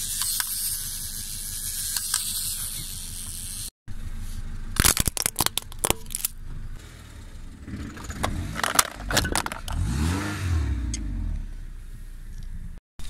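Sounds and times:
car engine running: 5.6s - 12.8s.

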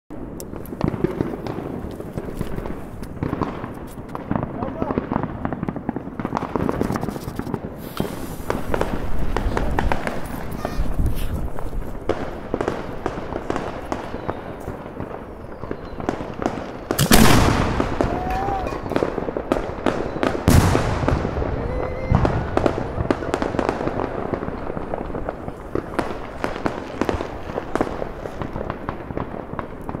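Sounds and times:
firework bursting overhead: 0.1s - 30.0s
firecracker pops: 0.4s - 15.2s, 15.8s - 30.0s
firework shell launch boom: 17.0s - 19.2s.

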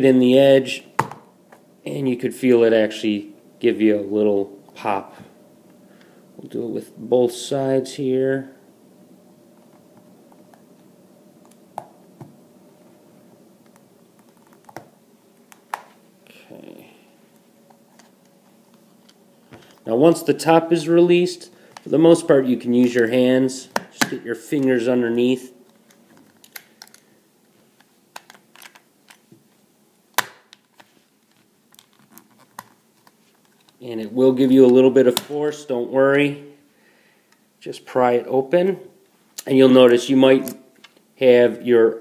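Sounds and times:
loud plastic snap: 30.1s - 30.6s.

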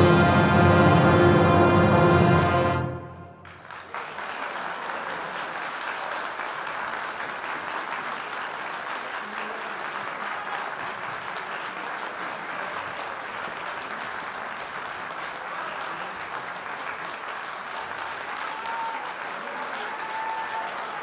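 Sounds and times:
orchestra final chord: 0.0s - 3.4s
audience applauding: 3.1s - 21.0s.

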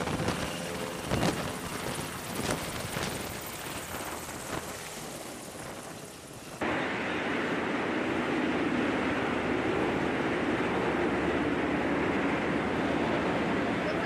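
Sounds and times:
helicopter rotor and turbine: 0.0s - 14.0s
machinery noise in hangar: 0.0s - 14.0s.

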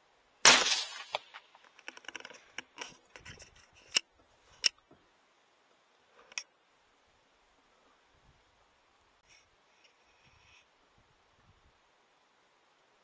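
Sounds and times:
rifle shot: 0.4s - 1.5s
small clicks and rattles: 1.1s - 5.0s.

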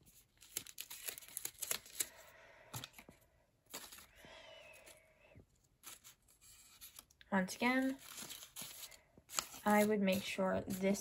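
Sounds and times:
paper rustling and crinkling: 0.0s - 2.1s, 2.7s - 4.1s, 7.7s - 11.0s.

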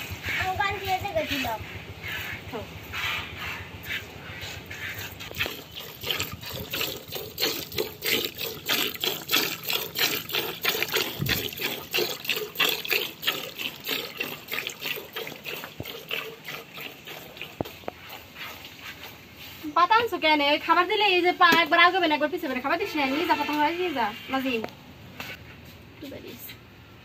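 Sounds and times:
milk squirting into bucket: 4.4s - 19.1s.

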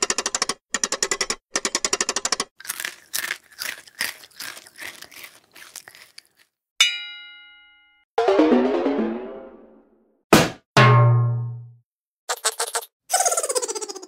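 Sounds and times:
crunchy crinkling bursts: 2.6s - 6.6s
bright metallic ding: 6.8s - 8.0s.

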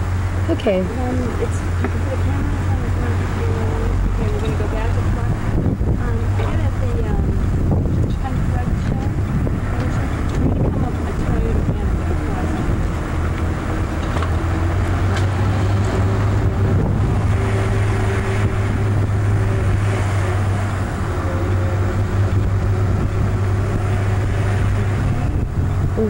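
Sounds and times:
car engine and road noise: 0.0s - 26.0s.

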